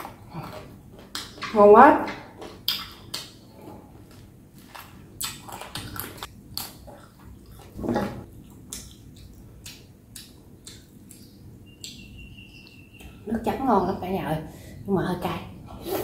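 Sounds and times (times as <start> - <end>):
chewing and wet mouth smacks: 0.0 - 1.5, 2.4 - 3.5, 4.1 - 12.2.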